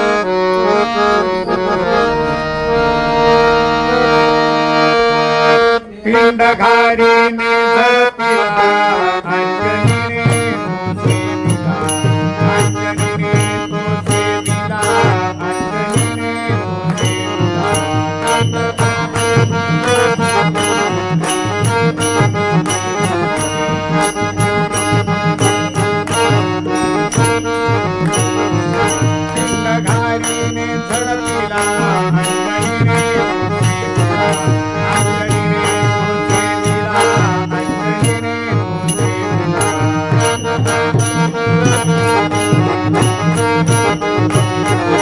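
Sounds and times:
harmonium melody: 0:00.0 - 0:45.0
hand drum beat: 0:09.7 - 0:45.0.

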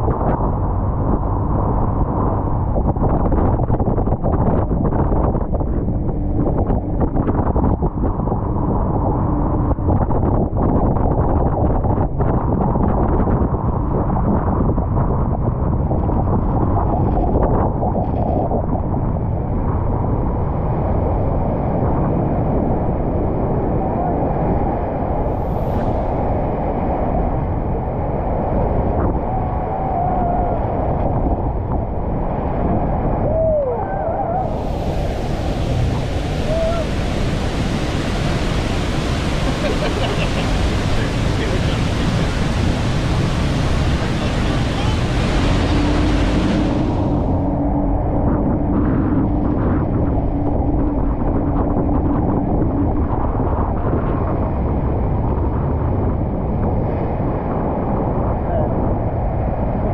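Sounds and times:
motorboat engine hum: 0:00.0 - 0:59.9
wind buffeting microphone: 0:00.0 - 0:59.9
roar of waterfall: 0:32.9 - 0:51.2.

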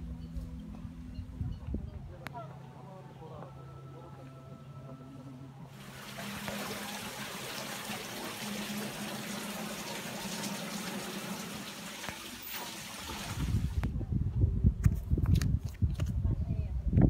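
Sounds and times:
water splashing into fountain: 0:05.7 - 0:13.8.

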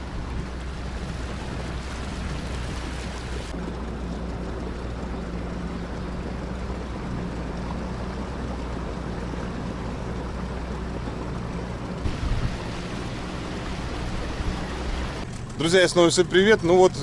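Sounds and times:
outboard motor humming: 0:00.0 - 0:17.0
wind: 0:00.0 - 0:17.0
water hiss: 0:12.1 - 0:15.3.

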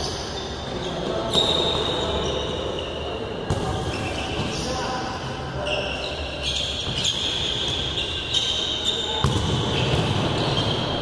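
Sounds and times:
shoes squeaking on hard floor: 0:05.6 - 0:11.0
ball struck: 0:09.2 - 0:10.4.

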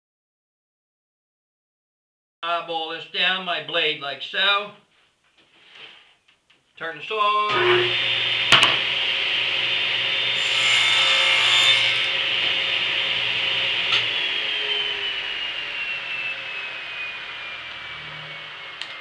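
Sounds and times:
saw blade whine coasting down: 0:07.5 - 0:10.8, 0:11.9 - 0:19.0
table saw cutting wood: 0:07.5 - 0:19.0.

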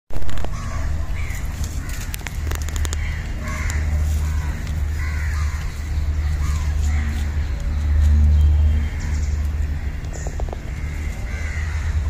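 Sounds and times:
steady low rumble: 0:00.1 - 0:12.0
sharp clicks: 0:01.9 - 0:03.8.

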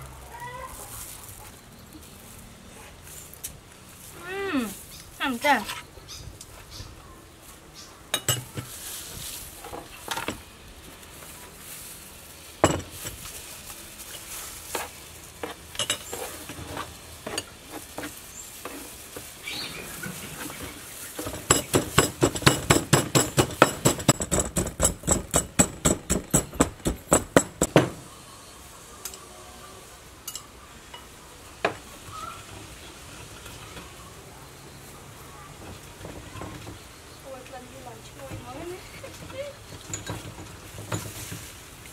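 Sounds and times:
pestle pounding in mortar: 0:21.2 - 0:27.9.

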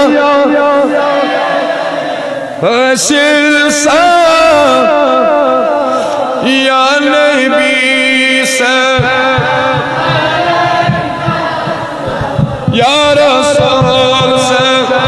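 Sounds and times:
man chanting through loudspeaker: 0:00.0 - 0:15.0
low thumps and rumble: 0:09.0 - 0:15.0.

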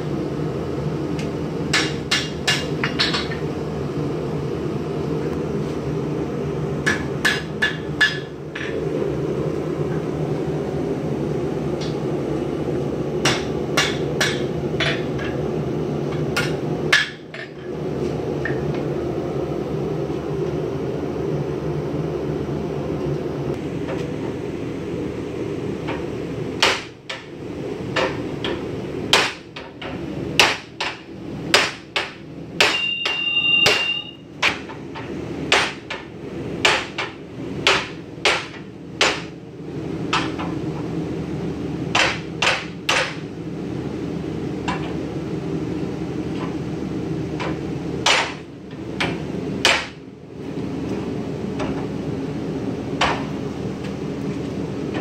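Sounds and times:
steady low hum: 0:00.0 - 0:55.0
hammer striking metal on anvil: 0:06.8 - 0:08.8, 0:13.2 - 0:15.3, 0:30.4 - 0:34.6.

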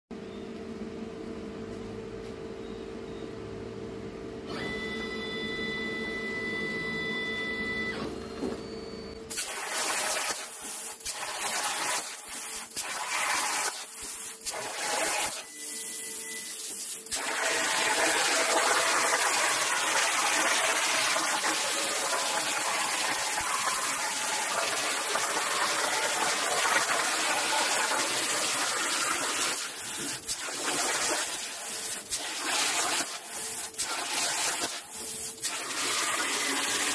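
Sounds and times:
plasma cutter torch hissing: 0:09.3 - 0:36.9.

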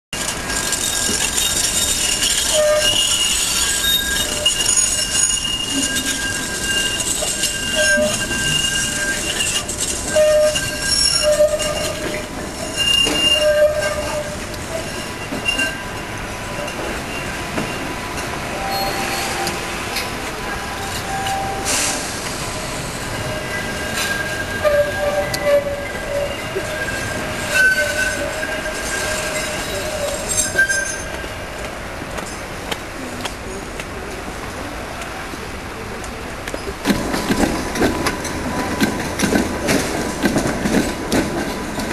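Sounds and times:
tram wheels squealing: 0:00.1 - 0:33.8, 0:36.4 - 0:41.9
trams rolling rumble: 0:00.1 - 0:41.9
wheels clacking on rails: 0:00.1 - 0:41.9.

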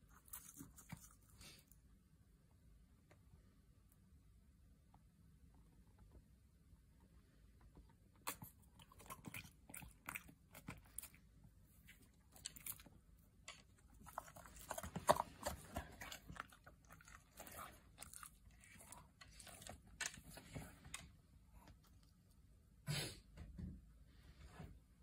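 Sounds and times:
dog chewing crunchy treat: 0:08.3 - 0:11.3, 0:11.9 - 0:20.8.

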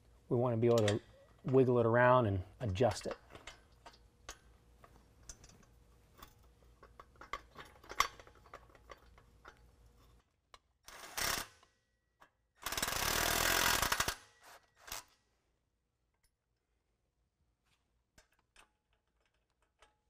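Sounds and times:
metal parts clinking: 0:02.8 - 0:10.2.

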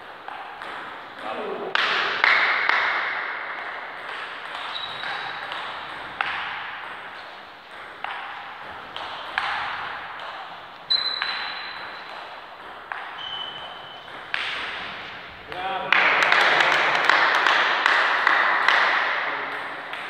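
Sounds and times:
table tennis ball clicking: 0:00.2 - 0:14.9.

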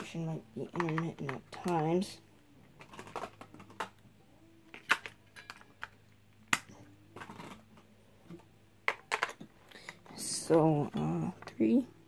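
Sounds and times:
sharp plastic snaps: 0:04.7 - 0:07.6
batteries clicking into compartment: 0:04.7 - 0:07.8, 0:08.8 - 0:10.1.

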